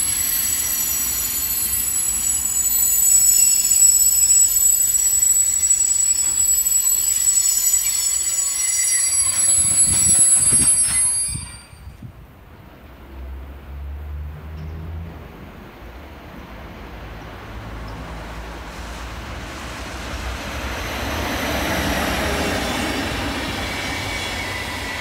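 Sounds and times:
train wheels squealing: 0:00.0 - 0:12.1, 0:20.0 - 0:25.0
freight train rolling past: 0:00.0 - 0:25.0.

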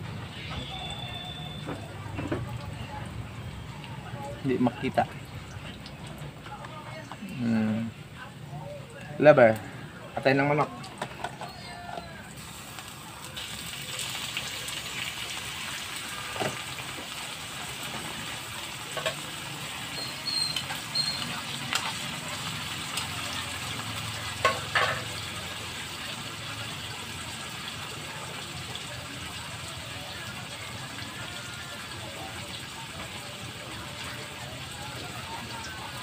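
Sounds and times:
food sizzling in frying pan: 0:11.5 - 0:36.0.

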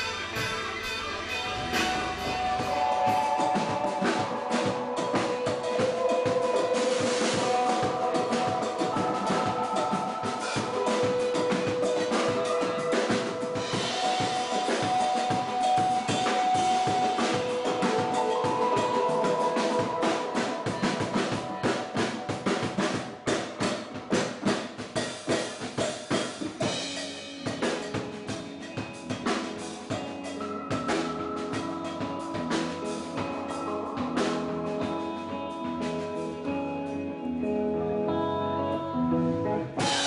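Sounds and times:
drum kit hits: 0:00.0 - 0:30.1
electric guitar: 0:00.0 - 0:40.0
live rock band playing: 0:00.0 - 0:40.0.

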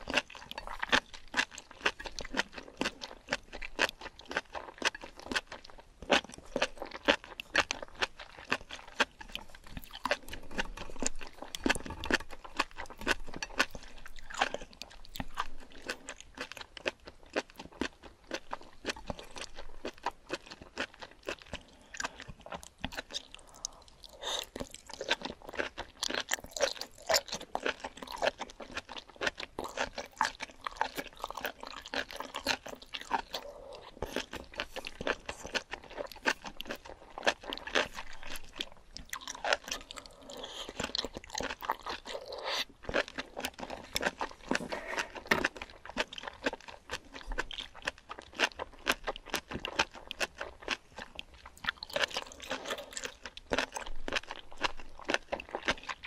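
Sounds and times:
wet chewing clicks: 0:00.0 - 0:56.0
slurping: 0:39.3 - 0:42.8, 0:43.6 - 0:45.4, 0:51.8 - 0:53.2.

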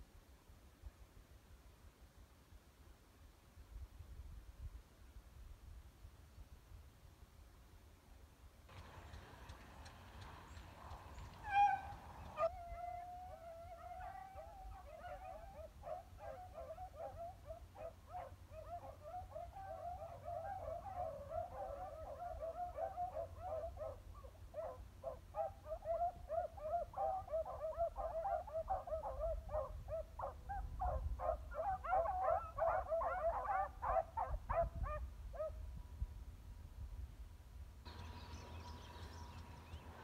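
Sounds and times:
dogs baying and yelping: 0:11.3 - 0:35.5.

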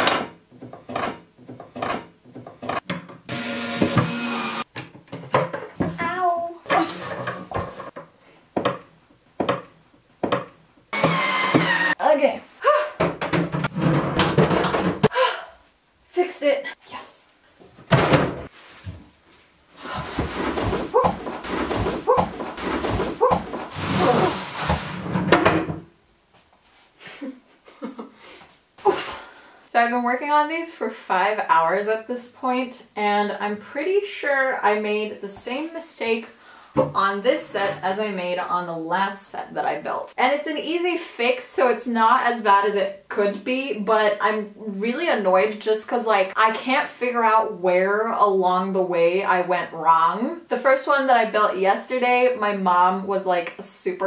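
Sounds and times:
electric screwdriver whirring: 0:03.3 - 0:04.6, 0:11.0 - 0:12.0
wooden parts scraping: 0:20.1 - 0:25.3.

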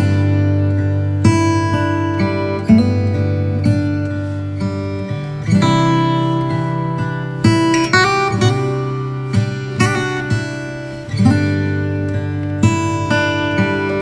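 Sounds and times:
acoustic guitar strumming chords: 0:00.0 - 0:14.0.

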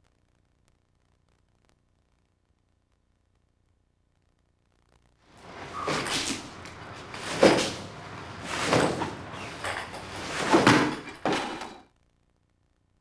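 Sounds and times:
paintbrush scraping on canvas: 0:05.4 - 0:11.3.

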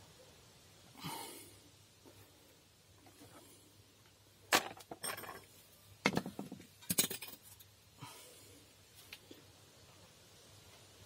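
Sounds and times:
metal hand tools clinking: 0:04.6 - 0:05.5.

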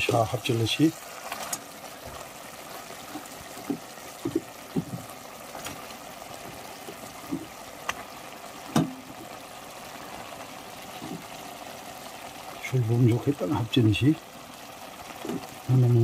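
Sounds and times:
broth simmering with bubbling pops: 0:00.0 - 0:16.0.

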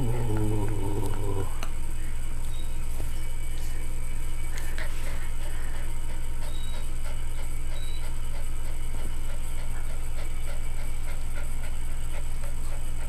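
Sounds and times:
dog panting: 0:00.0 - 0:13.0
steady low hum: 0:00.0 - 0:13.0.

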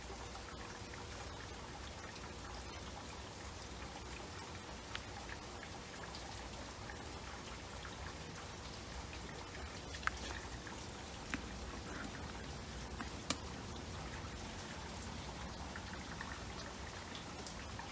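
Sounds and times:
water bubbling: 0:05.1 - 0:17.9.

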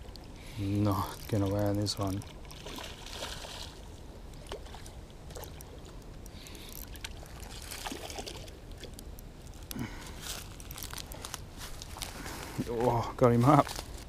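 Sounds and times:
low steady rumble: 0:00.0 - 0:14.0
fish splashing in water: 0:02.3 - 0:08.9
small clicks and rustles: 0:04.3 - 0:14.0.

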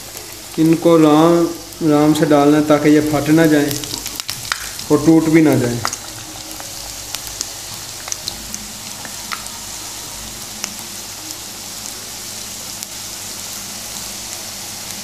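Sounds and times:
oil crackling and popping: 0:00.0 - 0:12.0
food sizzling in hot oil: 0:00.0 - 0:15.0.

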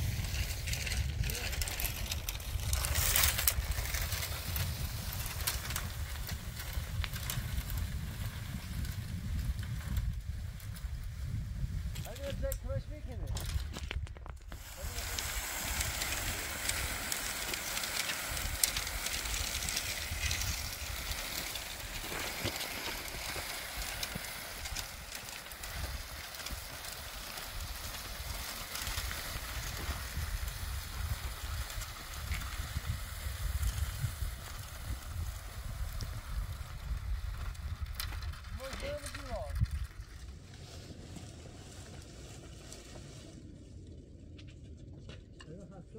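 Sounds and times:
brushwood dragged over stony ground: 0:00.0 - 0:45.4
wind rumble on microphone: 0:00.0 - 0:45.9
footsteps on gravel: 0:13.6 - 0:30.4.

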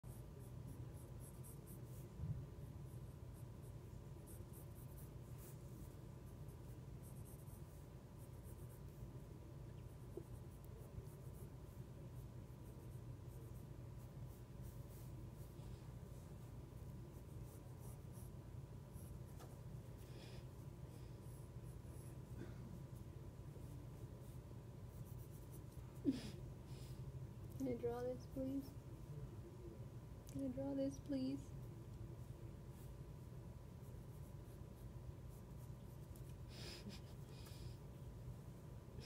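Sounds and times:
pencil scratching on paper: 0:00.0 - 0:26.0, 0:32.1 - 0:37.2
low room hum: 0:00.0 - 0:39.0.

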